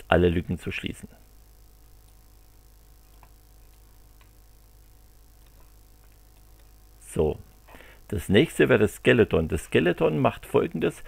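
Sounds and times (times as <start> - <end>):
electrical hum: 0.0 - 11.0
computer mouse clicks: 3.0 - 4.4, 5.4 - 6.8.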